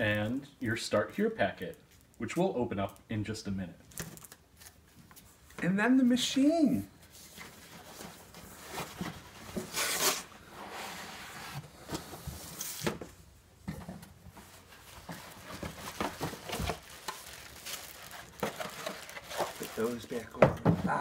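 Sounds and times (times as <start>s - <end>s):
cardboard packaging rustling: 3.9s - 5.4s, 7.0s - 13.2s, 14.3s - 21.0s.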